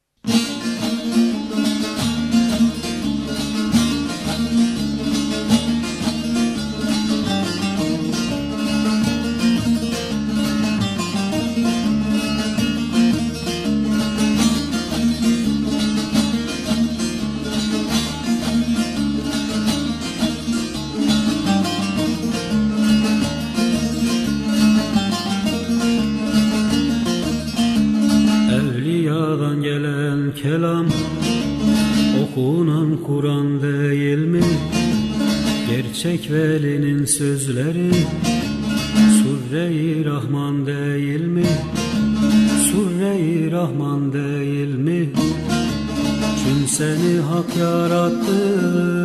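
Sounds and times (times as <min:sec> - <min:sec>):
plucked long-necked lute melody: 0:00.2 - 0:49.0.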